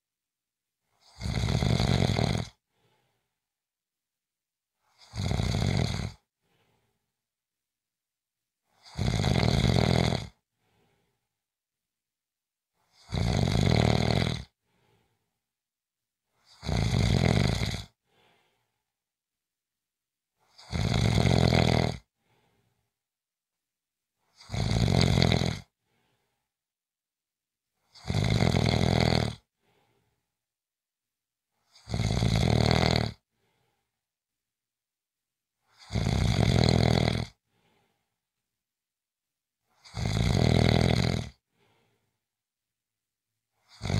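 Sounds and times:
loud rasping snores: 1.0 - 2.6, 4.9 - 6.3, 8.7 - 10.4, 12.8 - 14.6, 16.4 - 18.0, 20.4 - 22.1, 24.3 - 25.7, 27.8 - 29.5, 31.6 - 33.2, 35.7 - 37.4, 39.7 - 41.4, 43.6 - 43.9.

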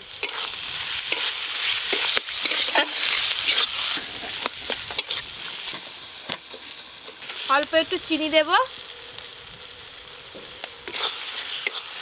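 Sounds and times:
food sizzling in hot oil: 0.0 - 12.0
metal spatula scraping wok: 0.1 - 7.5, 10.8 - 12.0.

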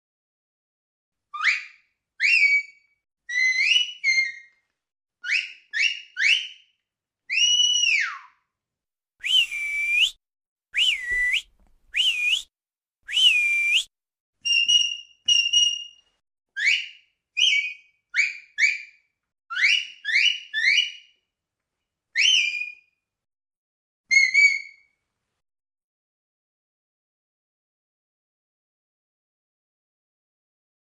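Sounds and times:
sharp high whistle blasts: 9.2 - 10.2, 10.8 - 12.5, 13.1 - 13.9.

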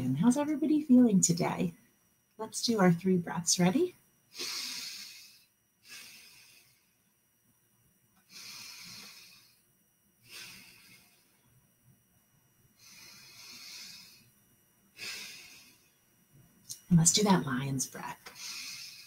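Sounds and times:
woman breathing deeply: 4.3 - 7.2, 8.2 - 11.6, 12.7 - 16.2, 18.3 - 19.0.

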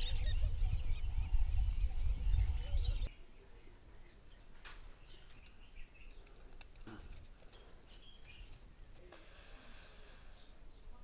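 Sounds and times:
faint bird chirps: 0.0 - 6.3.

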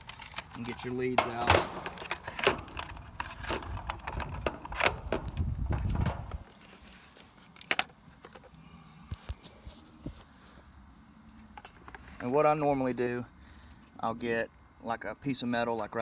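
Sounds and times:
test leads clicking and rustling: 0.0 - 6.6.

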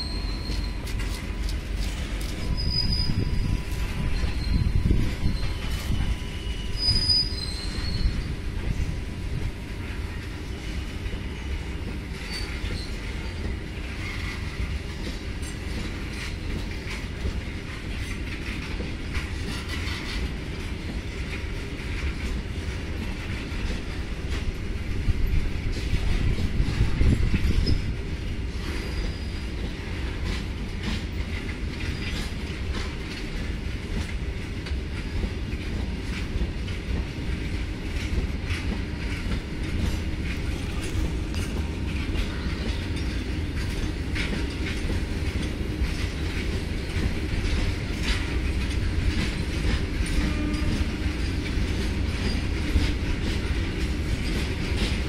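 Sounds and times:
high-pitched wheel squeals: 0.0 - 1.0, 2.4 - 8.4
freight wagons rumbling on rail: 0.0 - 55.0
wheels clanking over rail joints: 0.0 - 55.0.

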